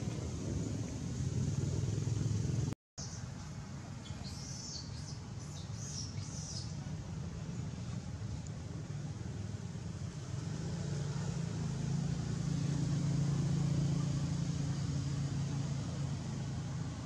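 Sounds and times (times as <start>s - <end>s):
vehicle engine passing by: 0.0s - 2.8s, 6.4s - 17.0s.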